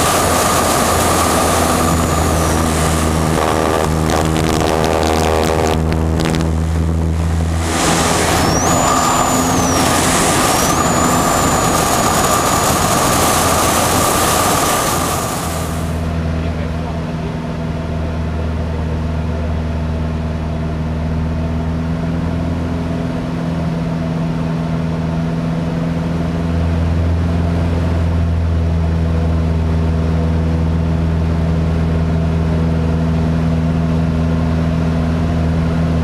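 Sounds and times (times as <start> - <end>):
wind noise: 0.0 - 16.0
propeller aircraft engine: 0.0 - 36.0.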